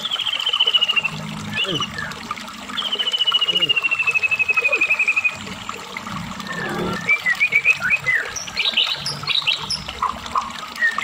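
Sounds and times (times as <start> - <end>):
bird singing trills and whistles: 0.0 - 2.2, 2.8 - 5.4, 6.8 - 10.1, 10.8 - 11.0.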